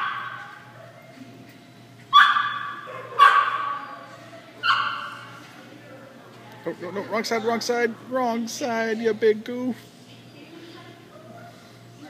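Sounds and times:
dog barking: 0.0 - 0.5, 2.1 - 3.8, 4.6 - 5.2.

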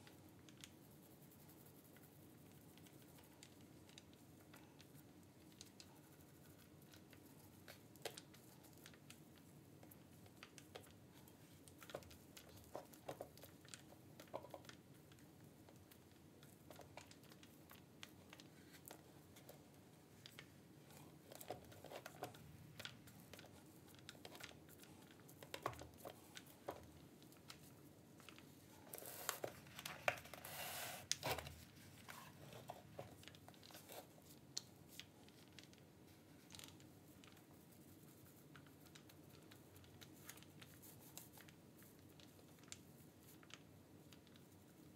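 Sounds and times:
brief hiss: 30.5 - 31.1.

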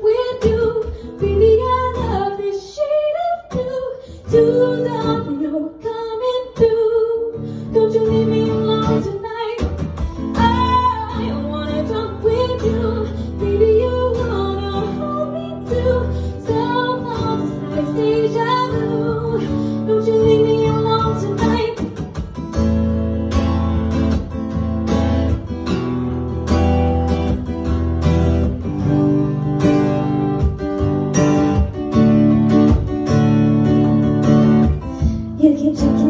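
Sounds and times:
woman singing: 0.0 - 22.3, 34.9 - 36.0
strummed acoustic guitar: 0.0 - 36.0.

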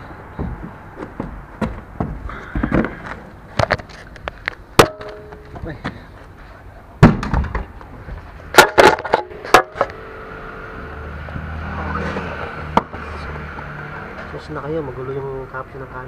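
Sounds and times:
low steady hum: 0.0 - 11.5
camera knocks and bumps: 0.4 - 5.5.

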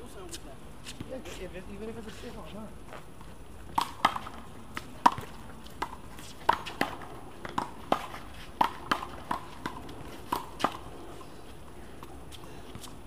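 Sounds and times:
handball smacks and bounces: 3.7 - 10.9.

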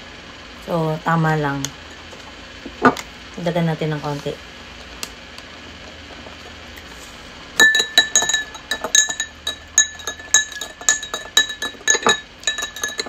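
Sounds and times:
metal stirrer clinking glass: 7.6 - 13.0.

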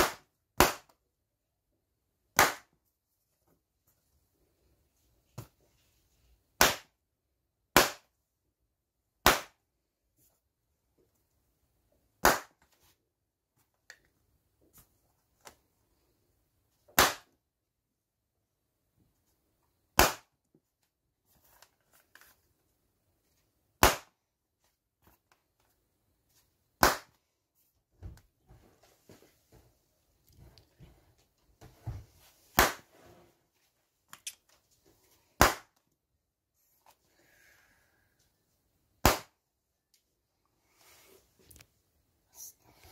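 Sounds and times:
balloons popping: 0.0 - 1.0, 2.3 - 2.8, 6.5 - 7.0, 7.7 - 8.1, 9.2 - 9.6, 12.2 - 12.7, 16.9 - 17.4, 19.9 - 20.4, 23.8 - 24.2, 26.8 - 27.2, 32.6 - 33.0, 35.4 - 35.8, 39.0 - 39.4
faint handling sounds: 20.6 - 23.6.

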